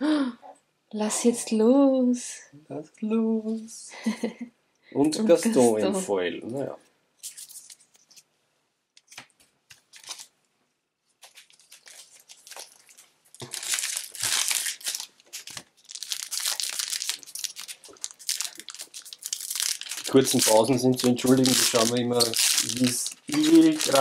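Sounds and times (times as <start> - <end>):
plastic wrapper crinkling and tearing: 9.0 - 10.3, 11.1 - 24.0.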